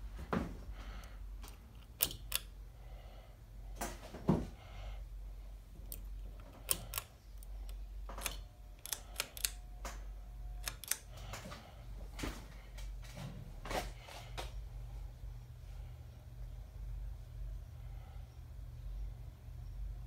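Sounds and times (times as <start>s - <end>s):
steady low hum: 0.0s - 20.0s
ceiling fan pull-chain clicks: 1.0s - 2.6s, 5.8s - 11.6s
faint steady tone: 14.6s - 20.0s.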